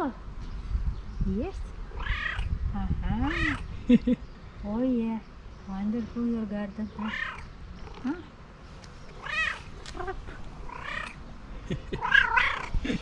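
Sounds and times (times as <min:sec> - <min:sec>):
cat meowing: 0:01.9 - 0:02.5, 0:03.2 - 0:03.6, 0:07.0 - 0:07.5, 0:09.2 - 0:11.2, 0:12.0 - 0:12.8.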